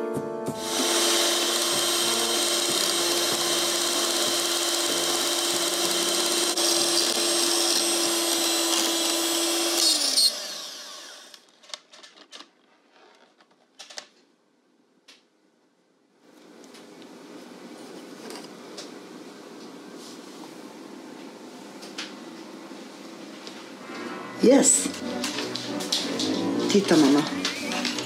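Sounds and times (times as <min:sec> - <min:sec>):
electric hand mixer whirring: 0:00.6 - 0:11.4.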